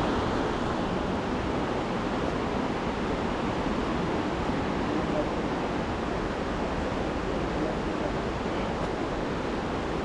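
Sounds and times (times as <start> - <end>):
mountain stream rushing: 0.0 - 10.0.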